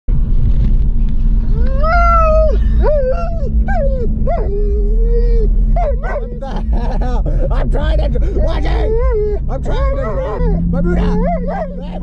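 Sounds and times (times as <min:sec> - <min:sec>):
car hum: 0:00.1 - 0:12.0
dog whining: 0:01.5 - 0:06.7, 0:08.4 - 0:12.0.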